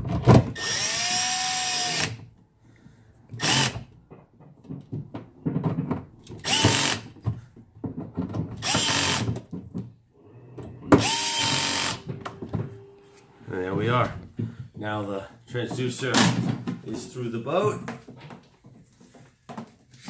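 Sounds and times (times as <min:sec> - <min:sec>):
cordless screw gun whining: 0:00.5 - 0:02.2, 0:03.3 - 0:03.9, 0:06.4 - 0:07.2, 0:08.6 - 0:09.4, 0:10.9 - 0:12.2.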